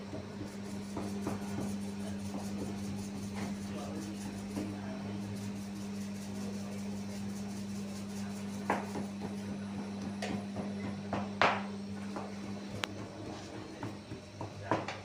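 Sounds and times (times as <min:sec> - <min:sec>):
steady low hum: 0:00.0 - 0:15.0
scraper slapping dough on table: 0:00.1 - 0:06.3.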